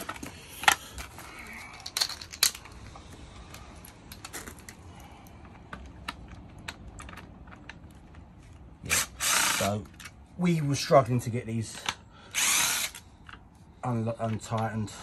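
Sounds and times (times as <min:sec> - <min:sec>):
clicks and knocks of handling tools: 0:00.0 - 0:08.7.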